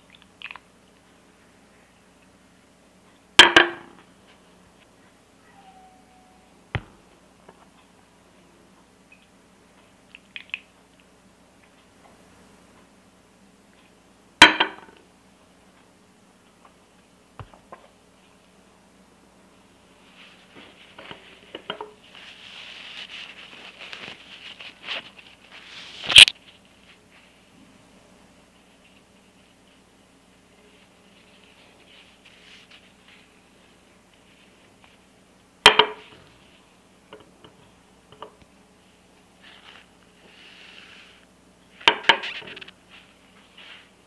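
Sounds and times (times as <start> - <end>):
soft sliding rustle: 19.9 - 27.5, 30.6 - 35.1, 39.4 - 41.3, 42.3 - 44.0
tissue paper rubbing glass: 22.0 - 26.1, 39.4 - 41.2.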